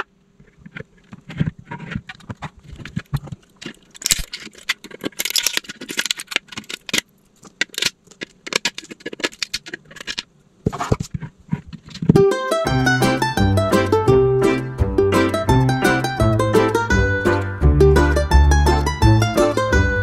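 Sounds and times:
blade scraping plastic: 0:00.0 - 0:12.2.

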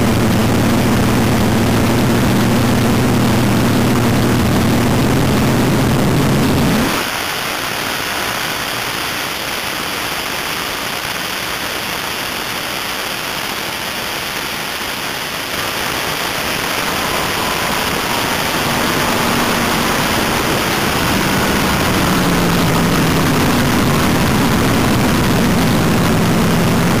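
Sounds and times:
car engine running low: 0:00.0 - 0:07.0, 0:15.5 - 0:27.0
wind rushing over microphone: 0:15.7 - 0:27.0.

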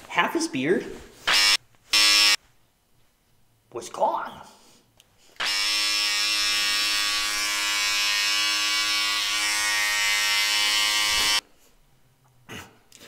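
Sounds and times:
electric hair trimmer buzzing: 0:01.3 - 0:02.4, 0:05.4 - 0:11.4.

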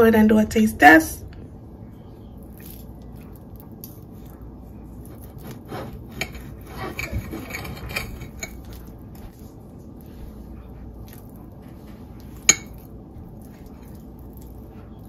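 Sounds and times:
knife and fork scraping plate: 0:05.1 - 0:08.8.

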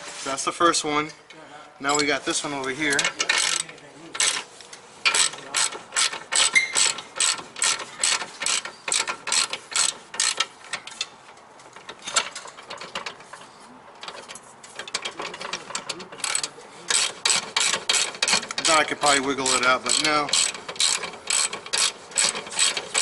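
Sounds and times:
ratchet wrench clicking: 0:01.9 - 0:04.4, 0:05.0 - 0:11.1, 0:14.0 - 0:23.0.

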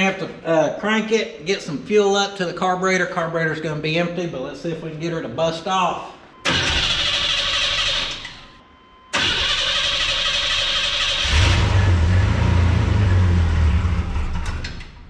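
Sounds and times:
engine starter cranking: 0:06.4 - 0:08.5, 0:09.1 - 0:11.9.

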